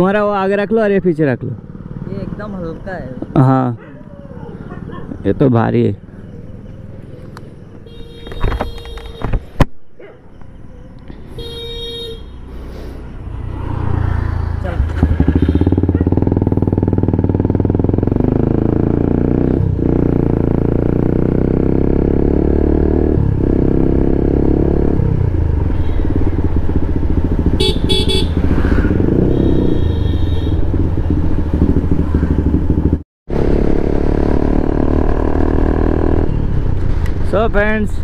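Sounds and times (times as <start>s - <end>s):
horn beeps: 7.8s - 9.4s, 14.9s - 16.2s, 27.5s - 28.5s, 29.1s - 30.9s
motorcycle engine running: 13.6s - 37.8s.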